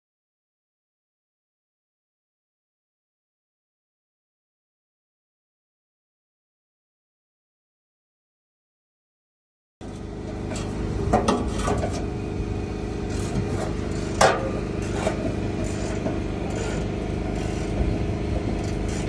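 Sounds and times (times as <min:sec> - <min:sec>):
diesel truck engine idling: 0:09.8 - 0:19.0.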